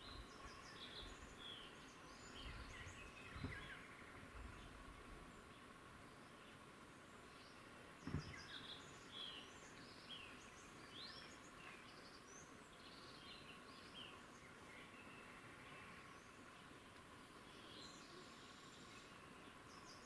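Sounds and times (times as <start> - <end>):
low thump: 3.4 - 3.7, 8.0 - 8.5.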